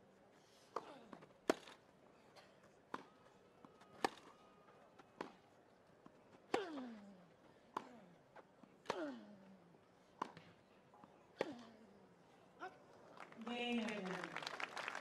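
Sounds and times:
tennis ball struck with racket: 1.5s - 1.8s, 4.0s - 4.3s.

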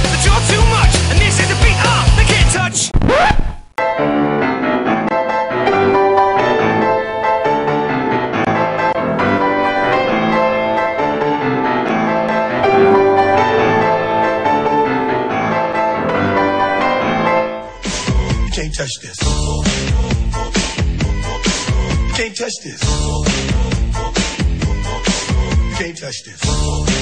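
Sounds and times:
piano music: 3.8s - 18.6s.

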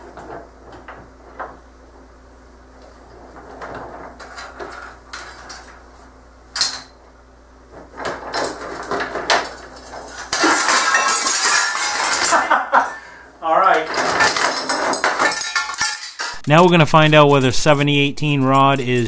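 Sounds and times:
heavy chain rattling: 13.6s - 16.8s
sharp metal clank: 14.2s - 16.6s.

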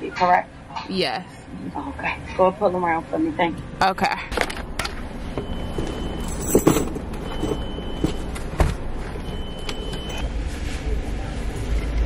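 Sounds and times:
car engine low rumble: 1.4s - 12.0s
high beep: 5.3s - 6.6s, 7.2s - 8.3s, 9.2s - 10.3s.

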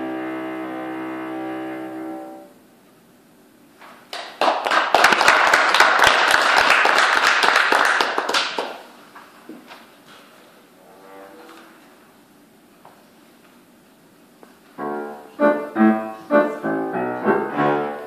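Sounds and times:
audience applause: 4.1s - 8.9s
double bass and piano chord: 14.8s - 18.0s.

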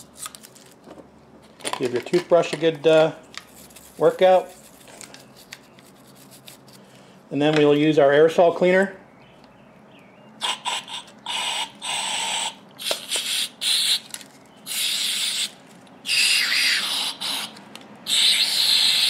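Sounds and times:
aerosol spray hissing: 11.3s - 14.0s, 14.7s - 15.5s, 18.1s - 19.0s.

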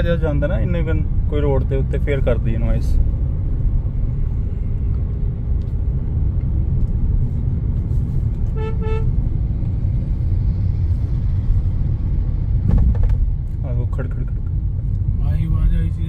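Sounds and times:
road and engine rumble in car: 0.0s - 16.0s
vehicle horn: 8.5s - 9.2s.

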